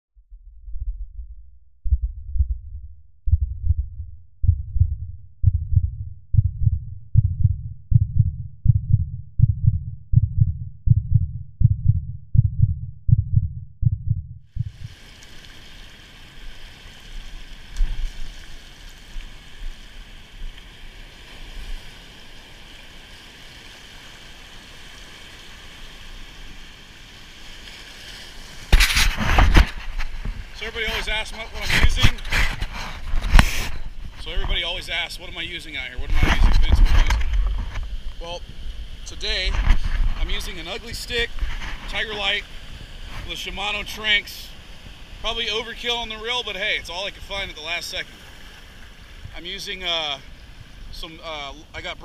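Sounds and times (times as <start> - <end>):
low heartbeat-like thumps: 0.1 - 15.0, 36.0 - 38.6
surf washing over rocks: 14.6 - 52.0.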